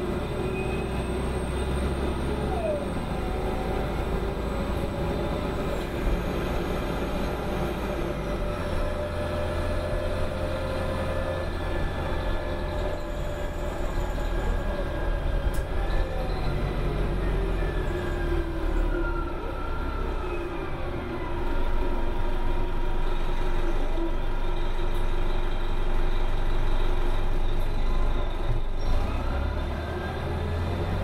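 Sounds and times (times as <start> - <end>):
bus diesel engine rumble: 0.0 - 31.0.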